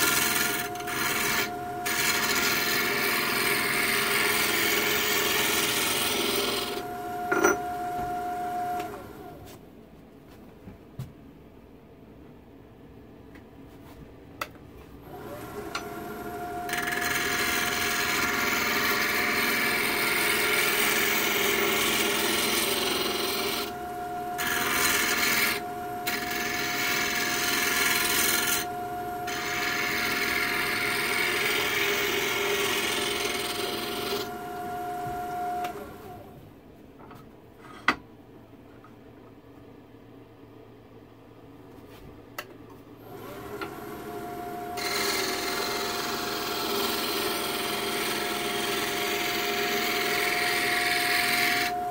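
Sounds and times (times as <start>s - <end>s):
tool rasping on spinning wood: 0.0s - 6.8s, 16.7s - 23.7s, 24.4s - 34.4s, 44.8s - 51.8s
lathe motor whining: 0.0s - 9.5s, 15.0s - 36.4s, 43.0s - 51.9s.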